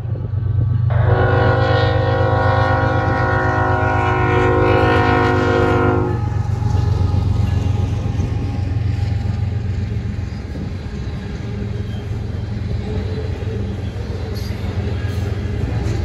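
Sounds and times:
locomotive low rumble: 0.0 - 16.0
locomotive air horn blast: 0.9 - 6.6.

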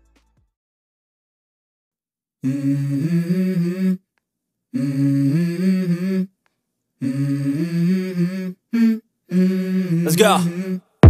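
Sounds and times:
hummed vocal phrases: 2.4 - 4.1, 4.7 - 6.4, 7.0 - 11.0.

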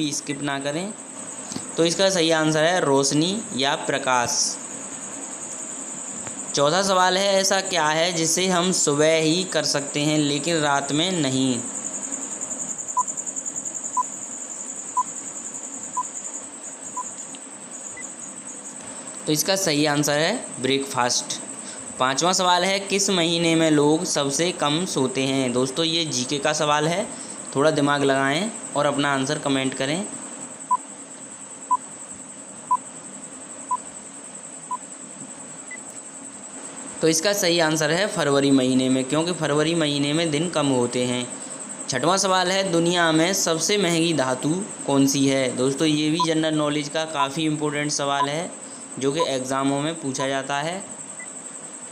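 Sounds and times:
crickets chirring: 0.0 - 51.9
faint high-pitched whine: 0.0 - 51.9
short electronic beeps: 16.9 - 17.1.

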